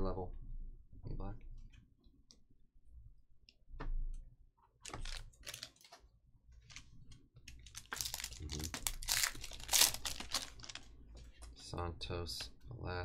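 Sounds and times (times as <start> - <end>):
foil wrapper crinkling: 4.9 - 5.9, 7.5 - 10.9.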